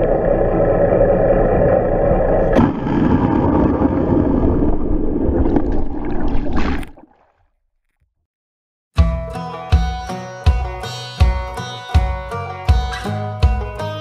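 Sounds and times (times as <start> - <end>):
muffled underwater rumble and gurgling: 0.0 - 6.6
water splash: 2.5 - 7.5.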